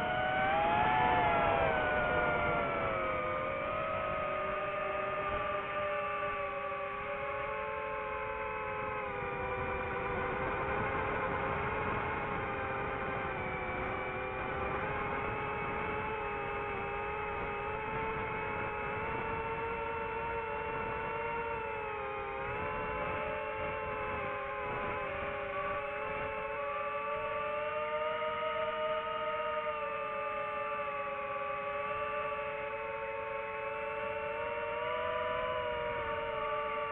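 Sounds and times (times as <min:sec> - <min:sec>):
quadcopter motors whining: 0:00.0 - 0:27.9.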